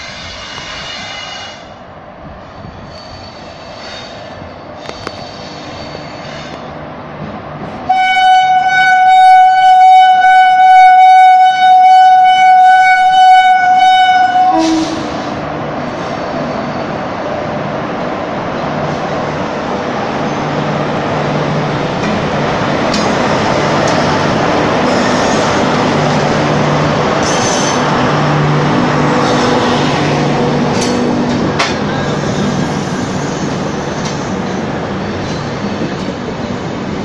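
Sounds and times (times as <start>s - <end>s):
train rumbling on track: 0.0s - 37.0s
locomotive horn blasts: 7.9s - 15.2s.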